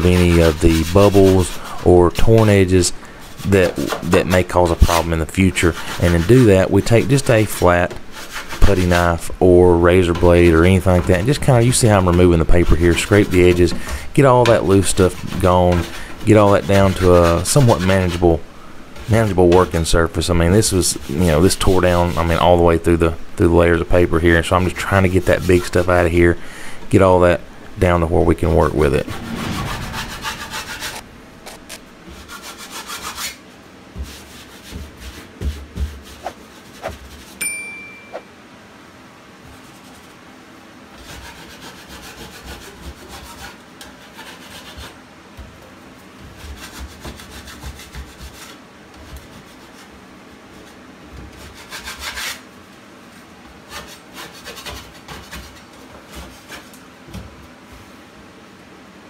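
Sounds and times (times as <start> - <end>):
putty knife scraping drywall: 0.0 - 2.7, 3.3 - 9.2, 9.9 - 18.4, 28.4 - 33.4, 41.0 - 45.0, 46.2 - 49.9, 50.5 - 52.5, 53.7 - 56.8.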